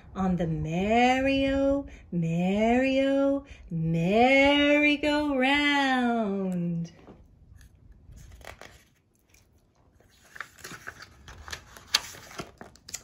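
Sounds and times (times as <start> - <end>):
paper pages rustling and turning: 7.2 - 13.0.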